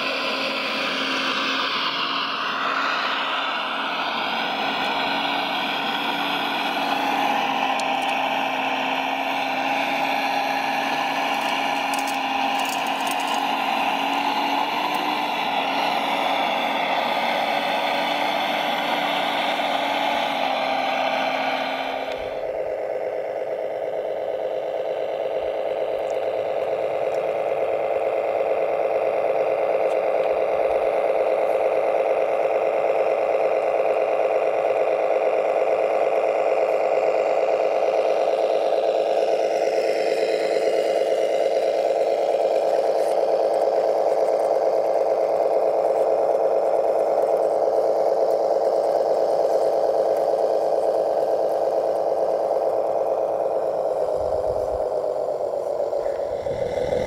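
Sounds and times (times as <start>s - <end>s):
model machinery engine drone: 0.0s - 57.0s
whining motor: 0.0s - 57.0s.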